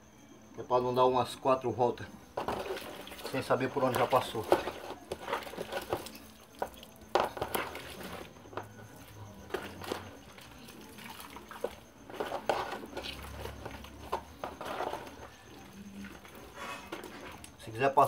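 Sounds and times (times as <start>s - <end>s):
water splashing and dripping: 9.2s - 14.4s.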